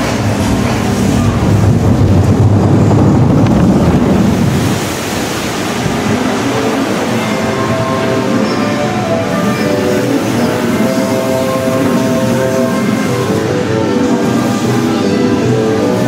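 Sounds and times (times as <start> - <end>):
water rushing and churning: 0.0 - 16.0
ride music: 5.9 - 16.0.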